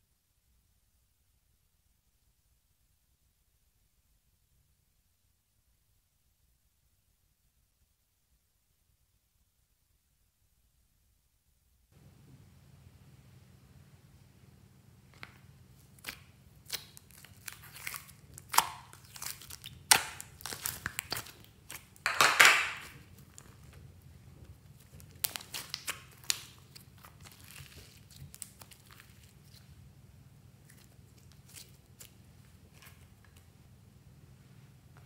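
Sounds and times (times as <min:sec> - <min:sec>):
slime squeezed crackling: 0:15.2 - 0:23.8, 0:24.6 - 0:29.9, 0:30.5 - 0:33.4.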